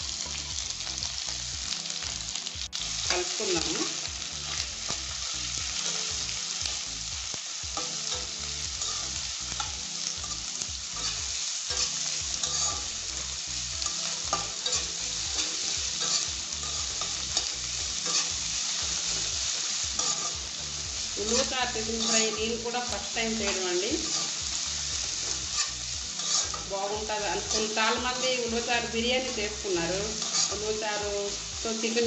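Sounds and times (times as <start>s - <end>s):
onions sizzling in hot oil: 0.0s - 32.0s
spatula scraping pan: 7.8s - 20.6s, 21.2s - 30.8s.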